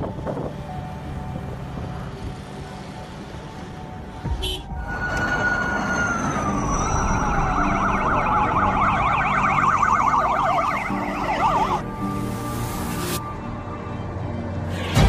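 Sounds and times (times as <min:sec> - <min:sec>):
siren sliding down in pitch: 0:04.8 - 0:12.0
yelping sirens: 0:04.8 - 0:12.0.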